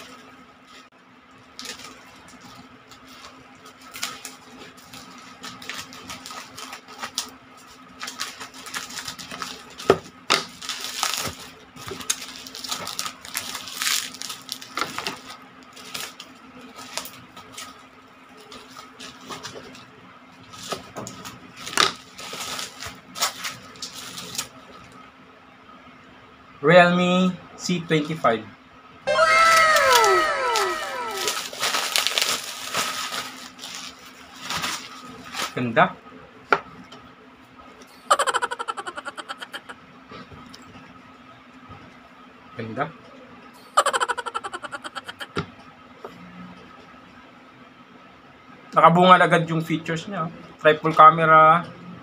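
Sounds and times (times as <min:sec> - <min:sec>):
plastic pouch crinkling: 0:10.5 - 0:16.1, 0:29.5 - 0:35.5.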